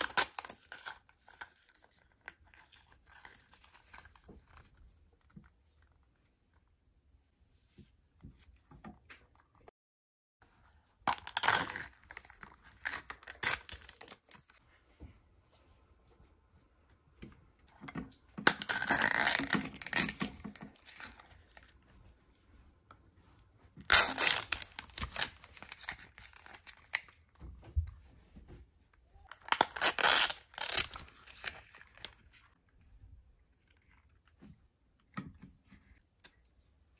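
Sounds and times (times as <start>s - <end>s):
plastic wrapping tearing and crinkling: 0.0s - 2.0s, 11.1s - 14.6s, 18.4s - 21.6s, 23.8s - 27.2s, 29.3s - 32.2s.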